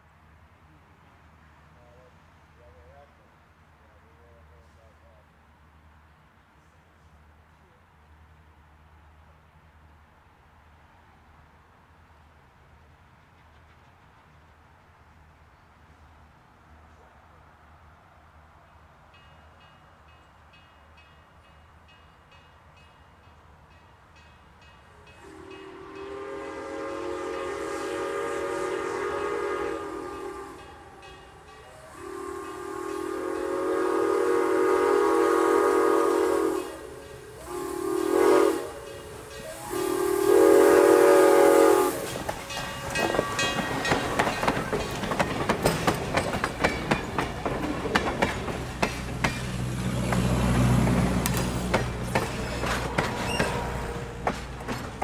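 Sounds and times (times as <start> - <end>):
train wheels clicking over rail joints: 13.1 - 14.6, 41.6 - 55.0
steam locomotive whistle blasts: 24.9 - 44.0, 52.1 - 54.2.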